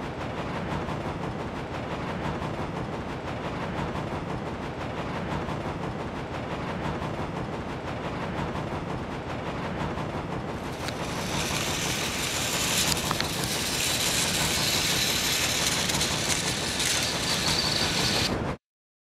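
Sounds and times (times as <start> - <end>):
toy train motor whir: 10.6 - 18.6
wheels running over plastic track: 10.6 - 18.6.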